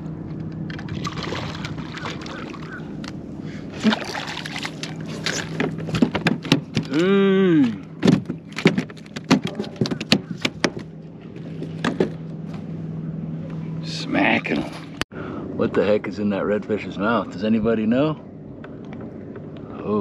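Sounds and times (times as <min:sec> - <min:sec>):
person exclaiming: 0:06.9 - 0:07.8.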